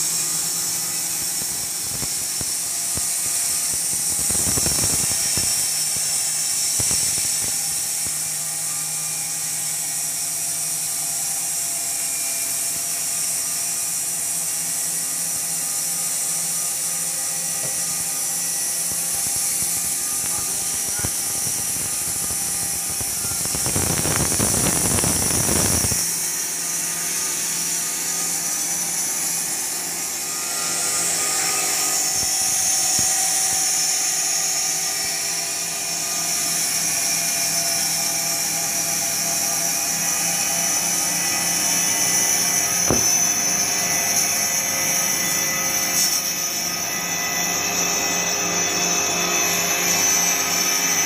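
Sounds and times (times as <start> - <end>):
bandsaw mill cutting log: 0.0 - 51.0.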